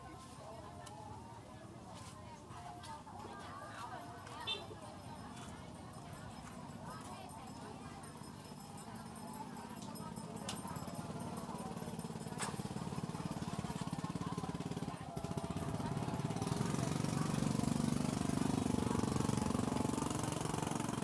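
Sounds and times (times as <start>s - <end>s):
small engine running: 7.8s - 21.0s.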